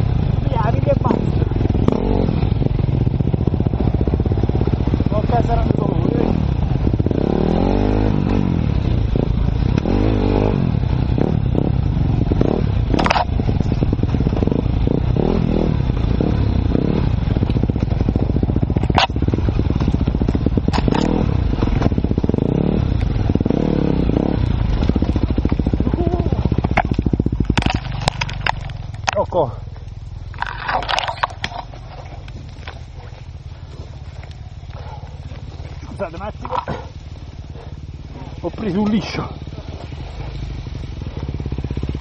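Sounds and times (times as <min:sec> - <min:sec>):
motorcycle engine revving: 0:00.0 - 0:42.0
bike knocking on ground and stones: 0:12.4 - 0:14.6, 0:17.3 - 0:22.2, 0:24.7 - 0:42.0.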